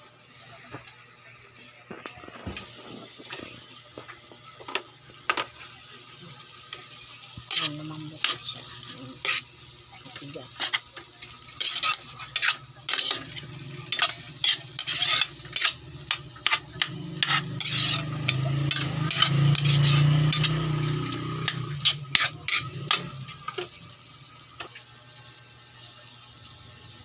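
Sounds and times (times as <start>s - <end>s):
meat sizzling: 0.0s - 27.0s
metal spatula scraping wok: 7.5s - 23.8s.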